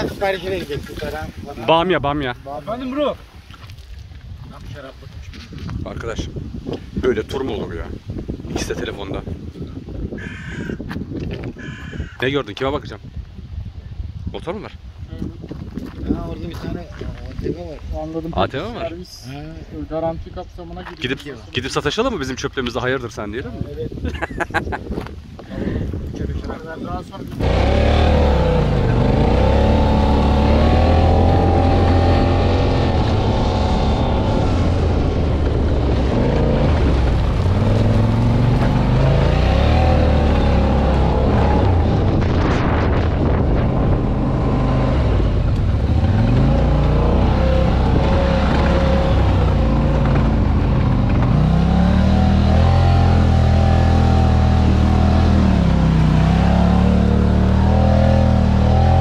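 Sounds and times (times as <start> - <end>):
off-road vehicle engine revving: 27.4 - 59.0.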